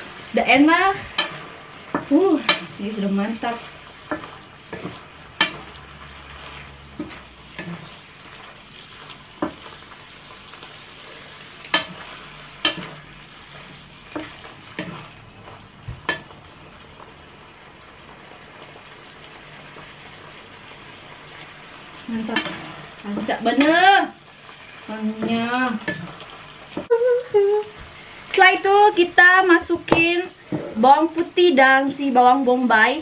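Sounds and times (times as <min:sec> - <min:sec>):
chicken sizzling in a pan: 0:00.0 - 0:33.0
wooden spatula knocking pan: 0:01.0 - 0:02.8, 0:09.4 - 0:09.7, 0:15.8 - 0:16.4.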